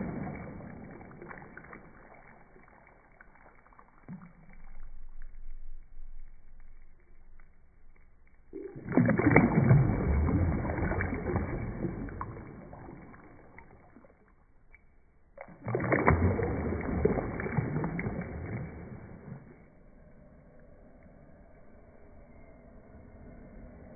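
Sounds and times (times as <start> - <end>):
water sloshing and churning: 0.0 - 4.8, 8.5 - 19.6.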